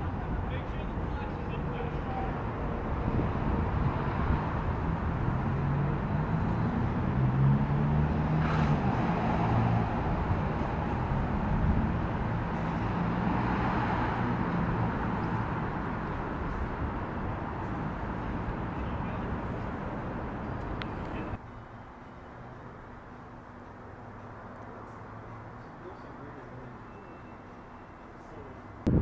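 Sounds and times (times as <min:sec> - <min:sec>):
urban traffic engine hum: 0:00.0 - 0:29.0.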